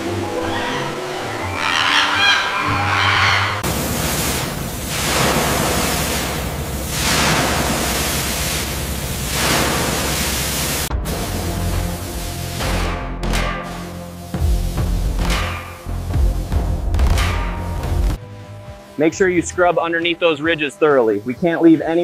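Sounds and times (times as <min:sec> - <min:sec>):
background music: 0:00.0 - 0:03.7, 0:10.9 - 0:22.0
low steady drone: 0:00.0 - 0:22.0
spray wands hissing: 0:03.6 - 0:12.9, 0:13.6 - 0:16.2.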